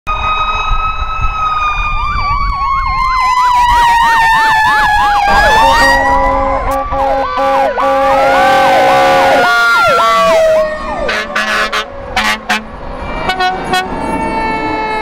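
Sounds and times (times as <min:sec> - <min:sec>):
siren tone falling in pitch: 0:00.1 - 0:11.3
fast electronic siren yelp: 0:00.1 - 0:12.4, 0:13.2 - 0:15.0
pulsing siren: 0:00.1 - 0:15.0
truck engines rumbling: 0:00.1 - 0:15.0.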